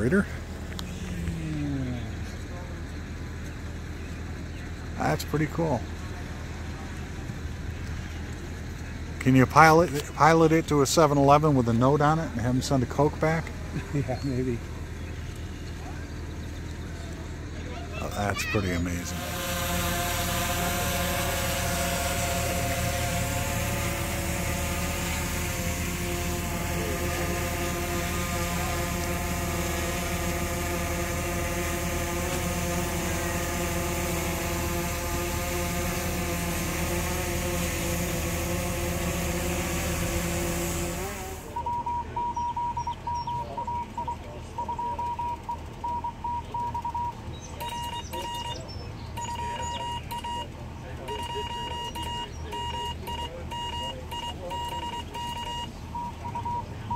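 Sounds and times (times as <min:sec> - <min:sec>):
drone propellers whining: 0:00.0 - 0:56.9
morse code beeps: 0:41.6 - 0:48.6, 0:49.2 - 0:50.5, 0:51.1 - 0:56.9.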